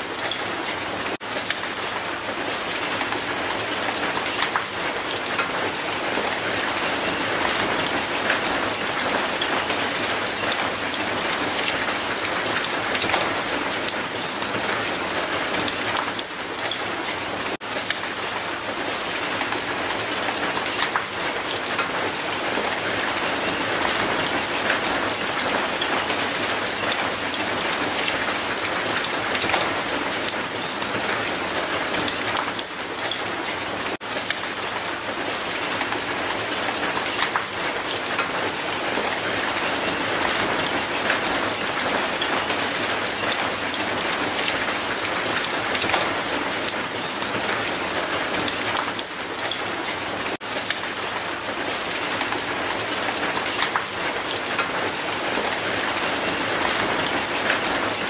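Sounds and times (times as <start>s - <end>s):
rain on paving: 0.0s - 58.0s.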